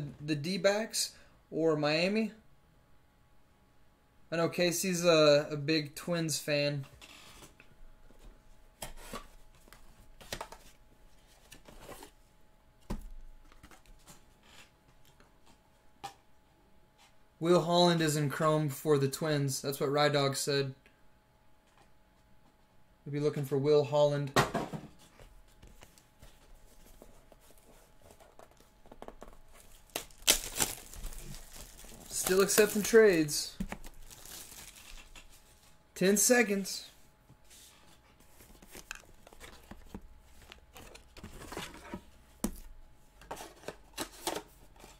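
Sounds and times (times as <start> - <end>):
plastic wrapping crinkling: 27.4 - 35.4.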